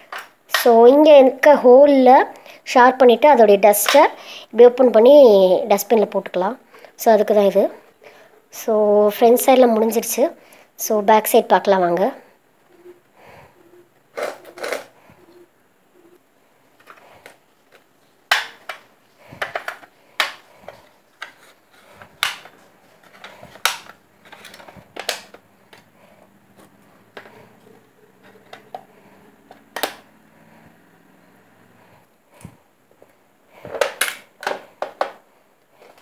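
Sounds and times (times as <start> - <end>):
plastic pencil box clicking: 29.5 - 30.0.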